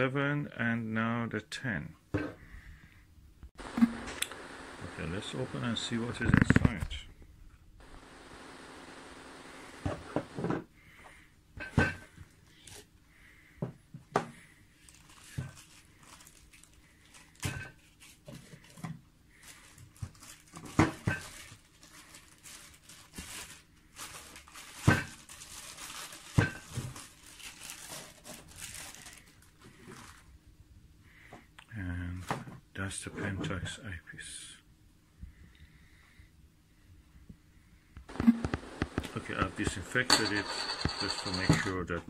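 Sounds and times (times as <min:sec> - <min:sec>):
plastic film crinkling: 0:14.8 - 0:18.8, 0:19.4 - 0:30.3.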